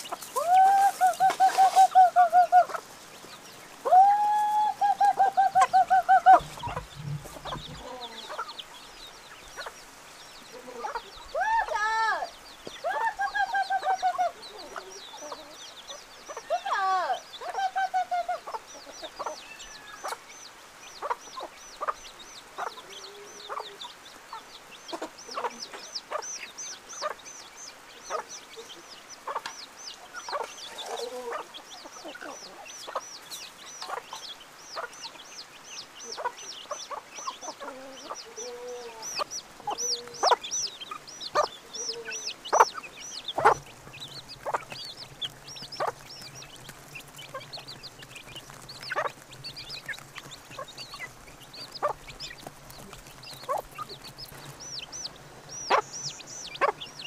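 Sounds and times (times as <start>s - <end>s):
chickens clucking: 0.0s - 57.0s
chicks peeping: 0.0s - 57.0s.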